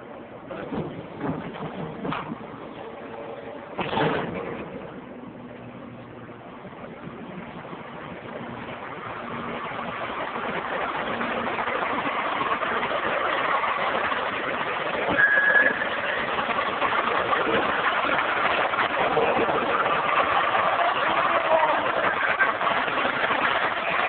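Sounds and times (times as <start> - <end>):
truck engine running: 0.0 - 24.0
brief high squeal: 15.1 - 16.4.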